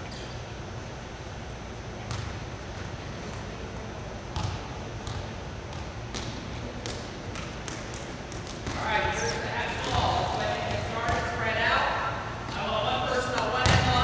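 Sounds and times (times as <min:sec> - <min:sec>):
balls bouncing on gym floor: 0:02.0 - 0:03.5, 0:04.3 - 0:11.6, 0:12.4 - 0:14.0.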